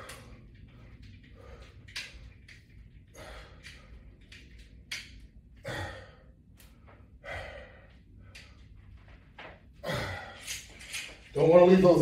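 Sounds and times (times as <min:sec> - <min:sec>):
man breathing hard: 0:00.0 - 0:04.6, 0:05.5 - 0:09.1, 0:09.7 - 0:10.8.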